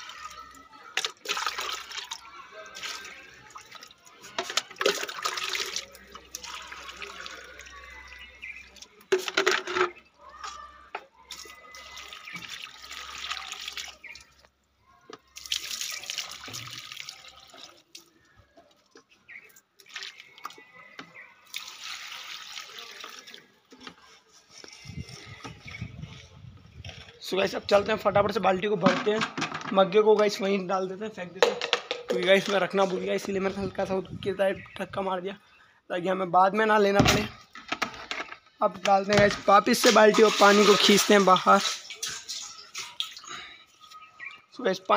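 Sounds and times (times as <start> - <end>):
water pouring into plant pots: 0.0 - 28.0, 39.0 - 44.9
water splash: 39.7 - 43.3.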